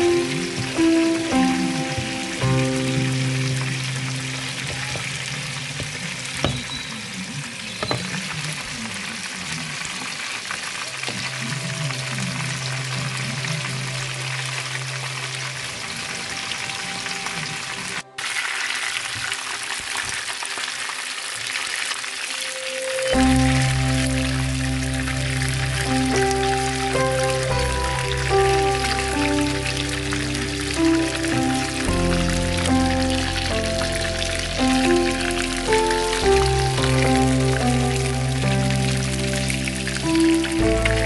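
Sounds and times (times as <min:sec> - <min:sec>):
fish deep-frying in sizzling oil: 0:00.0 - 0:41.0.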